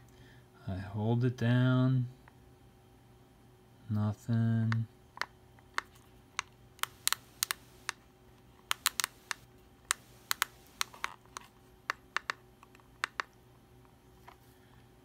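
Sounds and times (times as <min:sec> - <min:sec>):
plastic push-buttons clicking: 0:06.8 - 0:08.0, 0:08.7 - 0:11.1.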